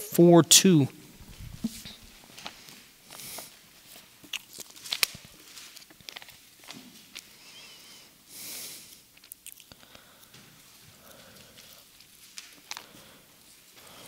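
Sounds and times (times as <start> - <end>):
paper pages rustling: 1.2 - 7.4.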